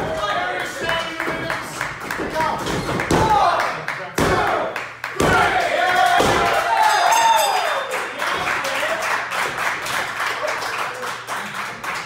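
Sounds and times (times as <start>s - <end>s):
crowd clapping: 0.5s - 12.0s
crowd shouting and cheering: 4.3s - 8.6s.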